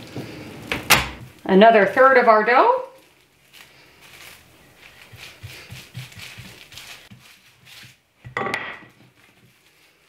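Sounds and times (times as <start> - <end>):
plastic wrap rustling: 0.0 - 8.3, 8.9 - 10.0
rolling pin rolling over dough: 3.5 - 10.0
rolling pin knocking on counter: 8.2 - 9.0.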